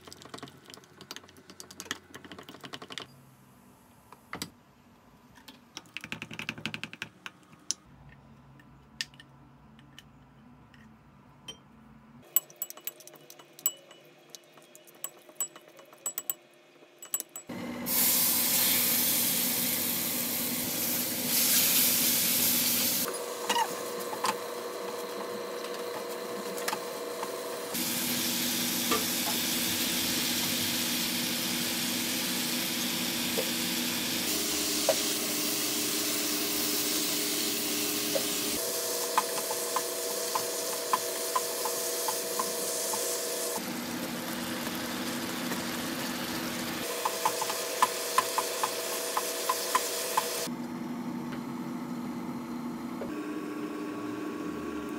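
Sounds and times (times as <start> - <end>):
food sizzling in a frying pan: 17.9 - 23.1, 27.7 - 38.6, 39.4 - 50.5.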